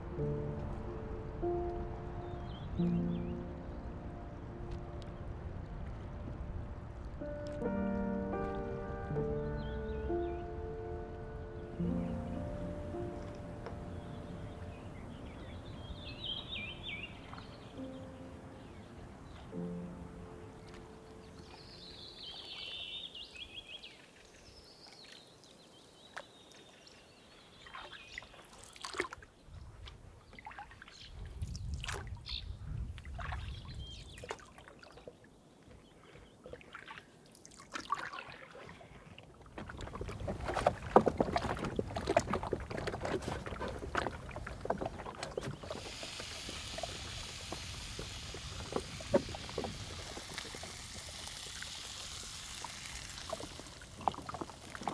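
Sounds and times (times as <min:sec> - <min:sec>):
canoe paddle strokes: 0:11.8 - 0:25.5, 0:27.6 - 0:54.9
water splashing against hull: 0:27.6 - 0:54.9
steady hiss: 0:45.6 - 0:54.0.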